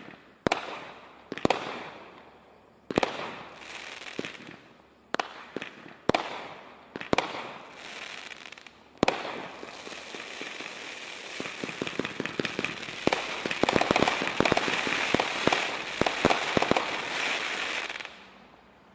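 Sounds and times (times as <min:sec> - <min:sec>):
firework shots: 0:00.0 - 0:02.2, 0:02.9 - 0:18.3
crackling firework pops: 0:00.0 - 0:02.3, 0:02.9 - 0:18.3
hiss of rising firework tails: 0:06.9 - 0:18.5.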